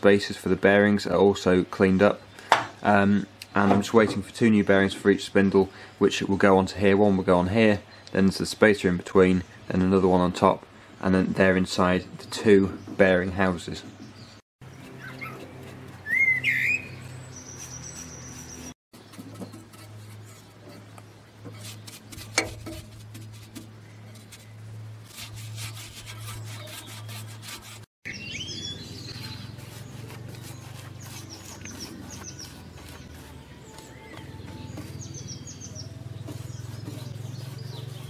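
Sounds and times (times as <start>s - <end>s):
bird whistles: 16.0s - 18.5s, 28.1s - 29.5s
quick high bird chirps: 16.0s - 18.7s.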